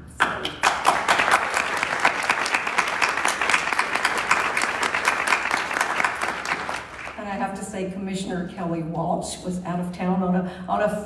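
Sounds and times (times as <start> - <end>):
audience applauding: 0.2 - 7.2.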